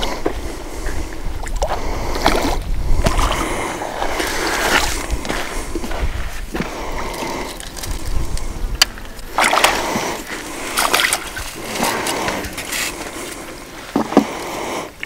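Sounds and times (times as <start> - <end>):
fish splashing at surface: 9.3 - 12.8.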